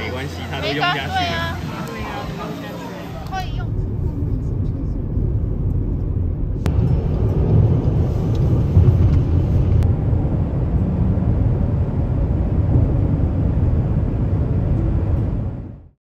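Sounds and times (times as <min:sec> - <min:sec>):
tyre and road noise in car: 0:03.2 - 0:15.8.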